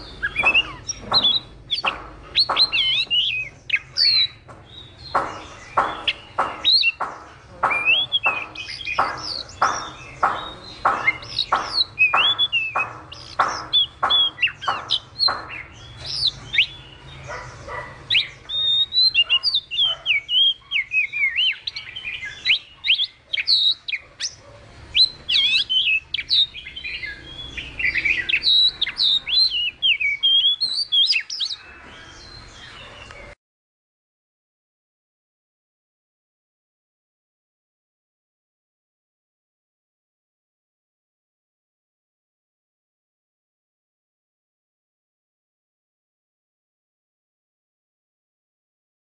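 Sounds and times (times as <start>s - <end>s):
bird singing: 0.0s - 33.4s.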